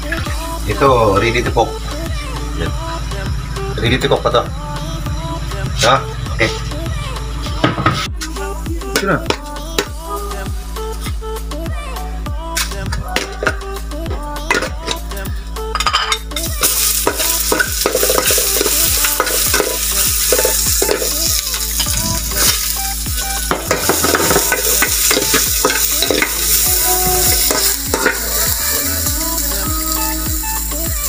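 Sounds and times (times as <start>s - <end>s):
ginger sizzling in hot oil: 16.4s - 31.0s.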